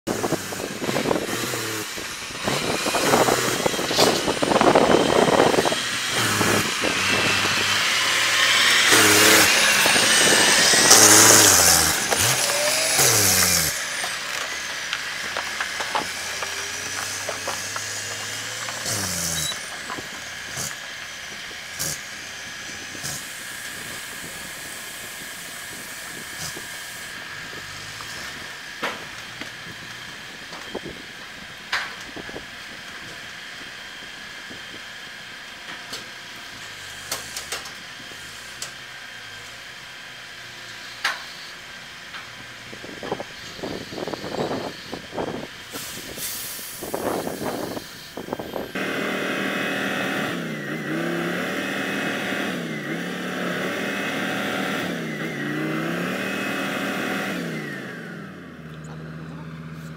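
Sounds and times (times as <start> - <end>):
truck diesel engine under load: 0.0 - 59.9
air hiss: 45.7 - 48.7.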